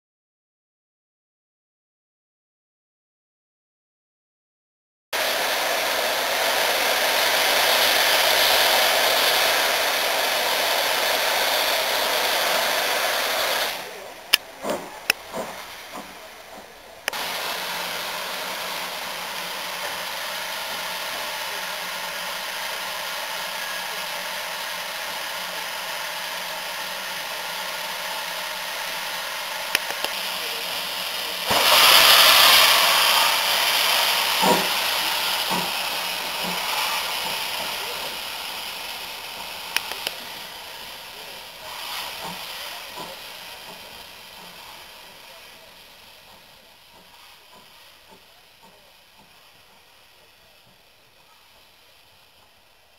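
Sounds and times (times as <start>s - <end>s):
steam blowing from drain cocks: 5.2s - 52.9s
steam locomotive hissing: 5.2s - 52.9s
clicks: 14.3s - 17.2s, 29.7s - 30.2s, 39.6s - 40.2s.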